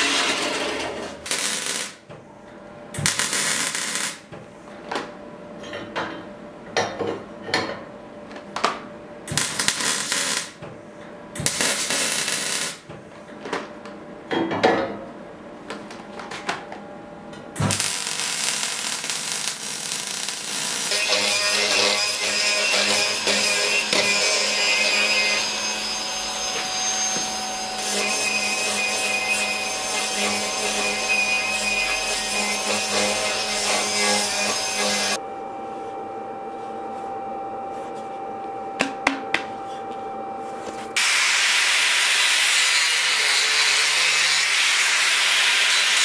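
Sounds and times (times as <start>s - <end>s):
band saw cutting metal: 0.0s - 2.0s, 18.6s - 35.2s, 41.0s - 46.0s
arc welder crackling: 0.0s - 2.1s, 3.0s - 4.3s, 9.3s - 10.6s, 11.4s - 12.9s, 17.6s - 35.2s, 41.0s - 46.0s.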